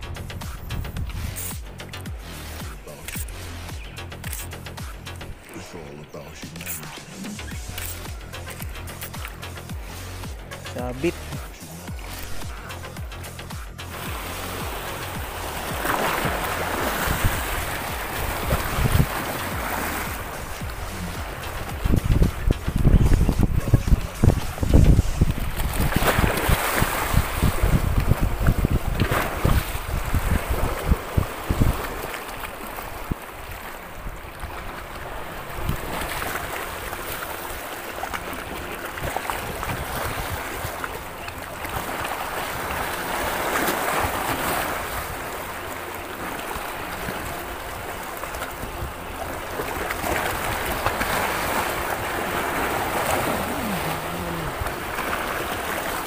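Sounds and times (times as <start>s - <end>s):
water slapping against a boat: 0.0s - 56.0s
wind buffeting the microphone: 13.9s - 36.8s, 38.2s - 45.4s.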